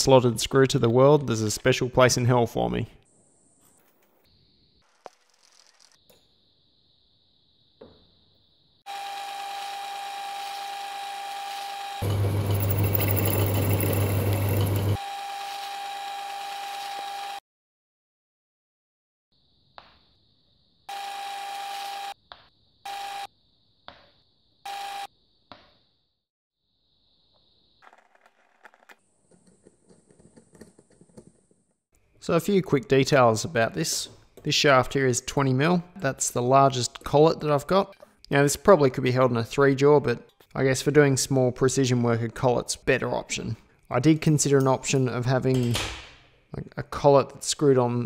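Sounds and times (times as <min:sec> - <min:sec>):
metal lathe gear whine: 0:08.9 - 0:17.4.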